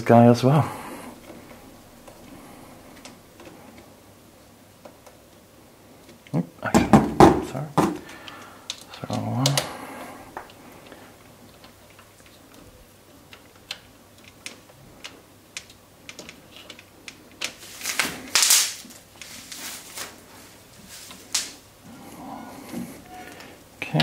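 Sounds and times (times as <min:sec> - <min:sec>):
rustling handling noise: 0:07.4 - 0:24.0.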